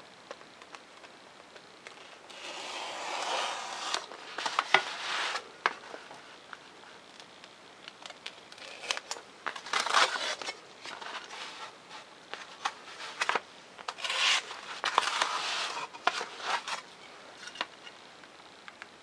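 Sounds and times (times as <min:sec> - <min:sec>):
knife cutting foam sheet: 0:02.3 - 0:05.4, 0:13.0 - 0:16.8.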